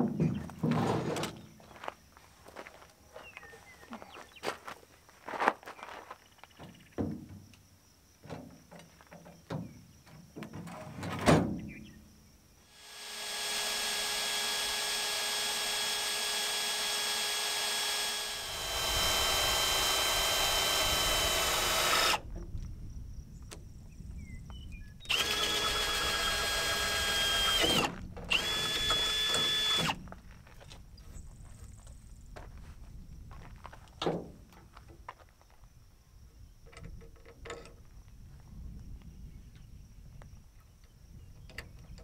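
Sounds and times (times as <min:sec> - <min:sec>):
cordless drill boring wood: 0:12.7 - 0:22.2, 0:25.1 - 0:30.0.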